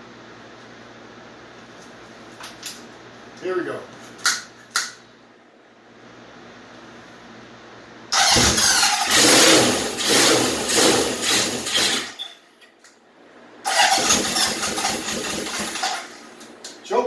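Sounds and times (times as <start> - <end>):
motorcycle electric starter cranking: 8.1 - 12.4, 13.7 - 16.2.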